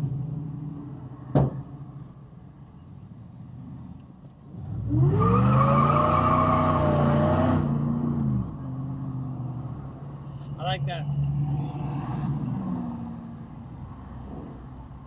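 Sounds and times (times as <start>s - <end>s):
car engine accelerating hard: 4.6s - 9.4s.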